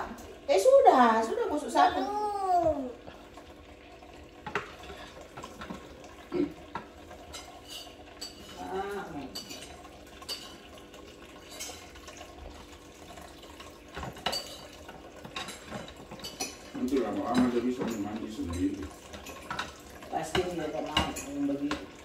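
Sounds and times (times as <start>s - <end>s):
tap water running: 0.0s - 22.0s
plates clinking against steel sink: 4.4s - 10.8s, 13.5s - 21.9s.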